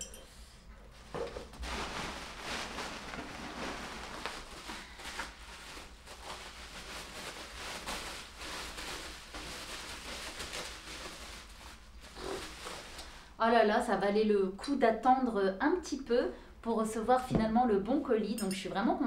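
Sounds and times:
bubble wrap crinkling: 0.9s - 13.4s.

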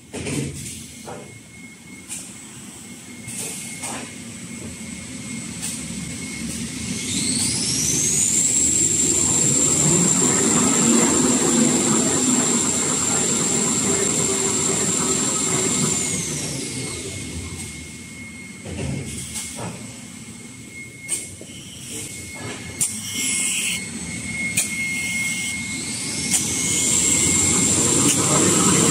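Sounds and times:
machine high whine: 1.0s - 28.9s
machine low rumble: 8.4s - 16.5s.

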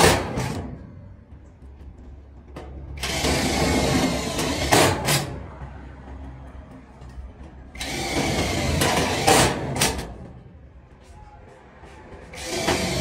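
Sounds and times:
power tool running: 3.0s - 5.2s, 7.8s - 10.0s, 12.3s - 13.0s.

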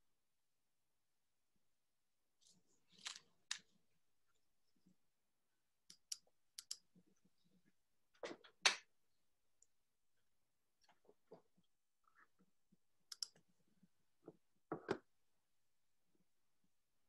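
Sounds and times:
small clicks: 5.9s - 6.8s, 13.1s - 13.4s.

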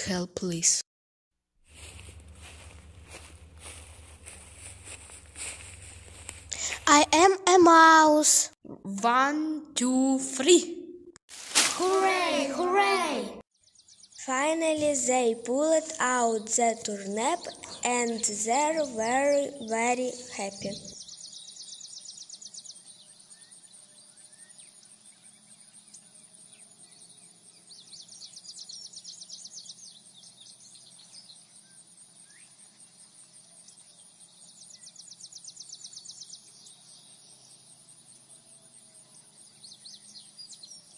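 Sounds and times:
birds chirping: 1.8s - 8.4s, 11.7s - 32.8s.

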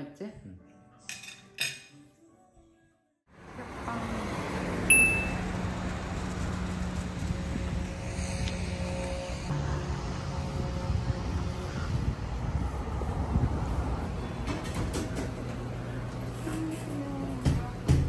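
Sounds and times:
soft background music: 0.0s - 4.2s
traffic rumble: 3.3s - 17.9s
short high ding: 4.9s - 5.4s
low hum: 4.9s - 14.5s.

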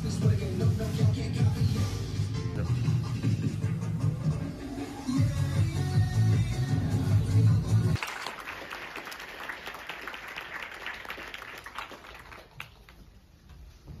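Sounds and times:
dance music with heavy bass: 0.0s - 8.0s
audience applause: 8.0s - 13.0s.

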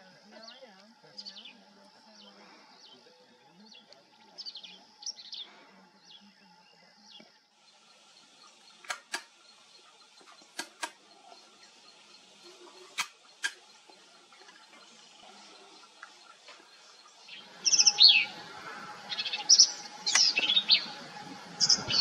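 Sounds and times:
sharp clicks: 8.8s - 9.4s, 10.2s - 11.0s, 12.9s - 13.7s
bird singing high notes: 17.0s - 21.0s.

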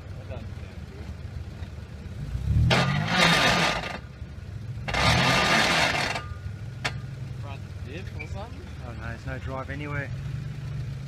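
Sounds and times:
suv engine revving: 1.8s - 11.0s
wheels spinning in dirt: 4.9s - 6.3s.

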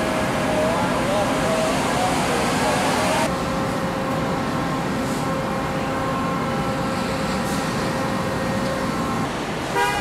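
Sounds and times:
factory machinery noise: 0.0s - 10.0s
car horn toot: 9.7s - 10.0s.

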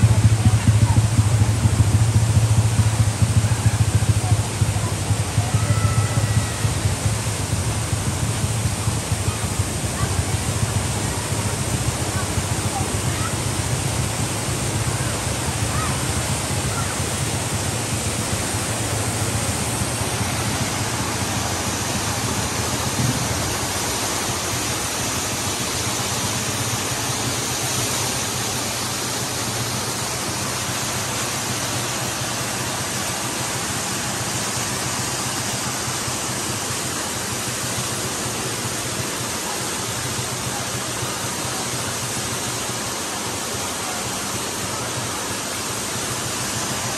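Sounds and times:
waterfall rushing: 0.0s - 46.9s.

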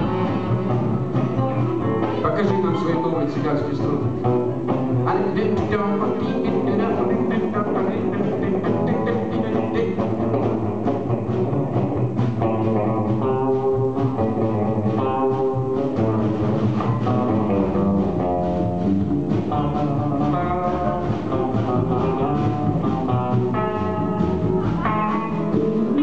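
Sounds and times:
acoustic and electric guitars: 0.0s - 26.0s
live band playing: 0.0s - 26.0s.

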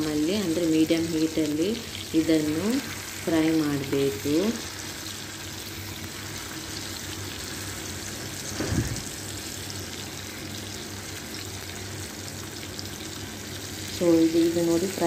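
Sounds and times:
fish sizzling in a pan: 0.0s - 15.0s.

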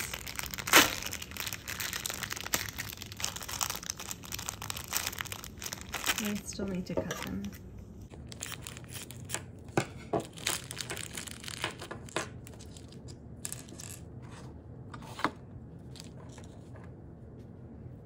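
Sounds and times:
scissors snipping plastic bag: 0.0s - 7.6s
plastic bag crinkling: 0.0s - 13.1s.

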